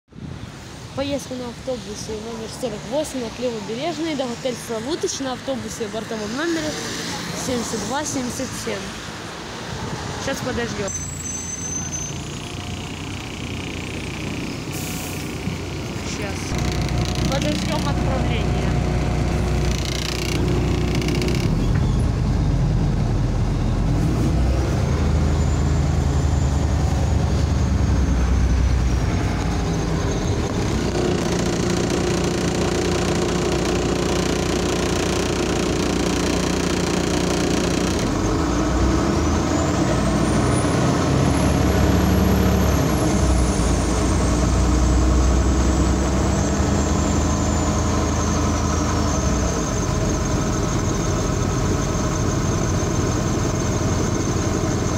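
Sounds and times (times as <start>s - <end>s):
bus engine running: 0.1s - 54.9s
high whine: 16.2s - 23.8s.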